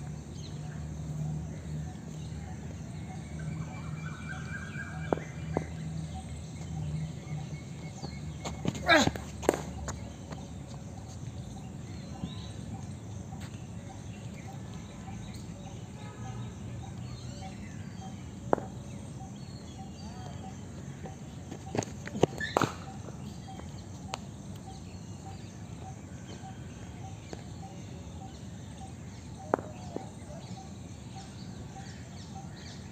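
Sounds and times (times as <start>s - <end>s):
cricket ball cracking on bat: 9.0s - 9.8s, 22.1s - 23.1s, 29.5s - 30.1s.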